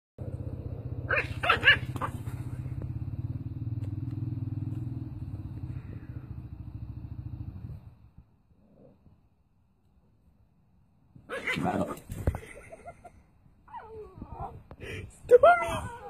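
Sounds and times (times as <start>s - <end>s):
dog barking: 1.1s - 2.2s.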